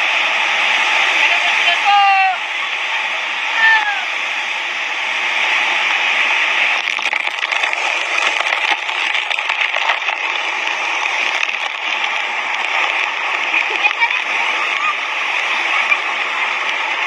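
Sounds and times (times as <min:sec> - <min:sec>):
river water rushing over rocks: 0:00.0 - 0:17.0
faint crackles: 0:06.6 - 0:17.0.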